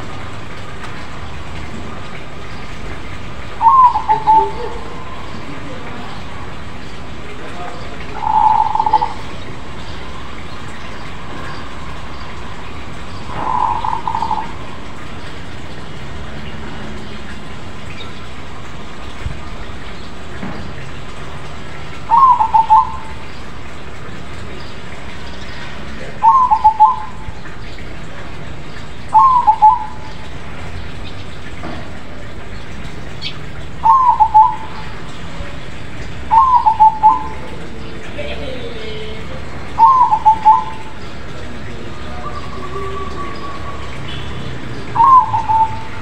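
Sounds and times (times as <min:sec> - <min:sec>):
steady background noise: 0:00.0 - 0:46.0
dove cooing: 0:03.6 - 0:06.1, 0:07.8 - 0:09.8, 0:13.2 - 0:15.0, 0:22.1 - 0:23.3, 0:26.1 - 0:27.3, 0:29.1 - 0:30.2, 0:33.8 - 0:35.6, 0:36.3 - 0:46.0.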